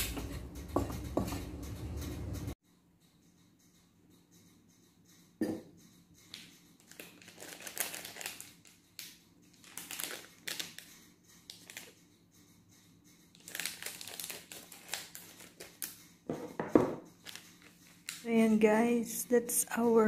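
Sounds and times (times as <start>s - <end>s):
foil sachet crinkling: 6.8s - 10.9s, 11.5s - 12.0s, 13.4s - 16.0s, 17.2s - 18.3s
scissors cutting foil: 6.8s - 10.9s, 13.4s - 16.0s.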